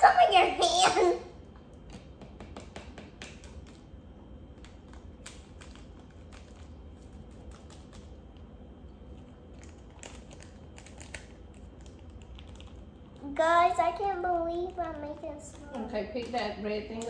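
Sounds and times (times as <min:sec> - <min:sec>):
plastic bag crinkling: 0:09.2 - 0:13.2.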